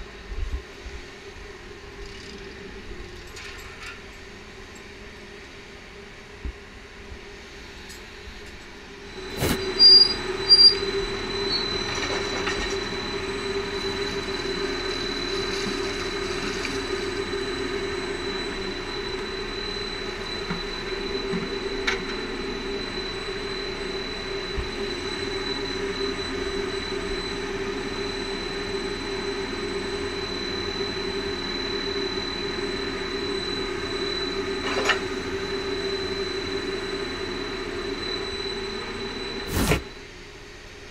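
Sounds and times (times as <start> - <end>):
machinery hum with high whine: 0.0 - 40.9.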